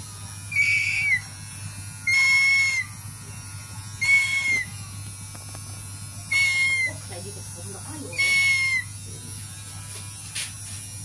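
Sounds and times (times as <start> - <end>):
bird of prey whistling call: 0.6 - 1.2, 4.0 - 4.6.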